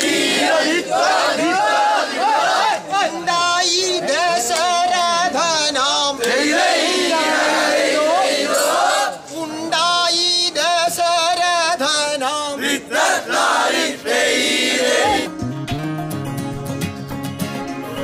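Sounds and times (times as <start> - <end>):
group of men chanting: 0.0 - 9.3, 12.5 - 15.3
man calling out a chant: 2.8 - 6.3, 9.2 - 12.6.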